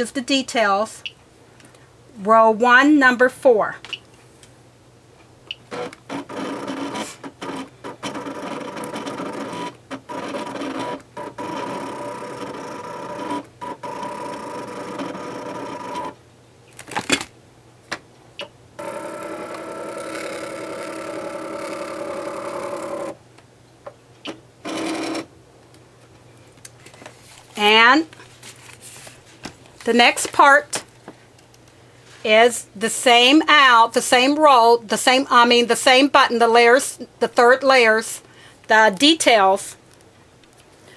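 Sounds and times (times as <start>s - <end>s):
cutting machine motor whine: 5.8s - 16.2s, 18.8s - 23.2s.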